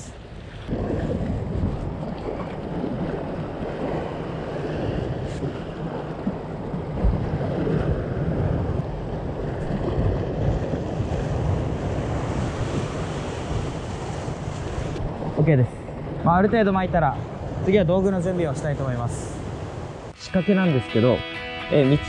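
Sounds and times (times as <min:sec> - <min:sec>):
wind buffeting microphone: 0:00.0 - 0:20.1
sea waves breaking on rocks: 0:00.6 - 0:16.4.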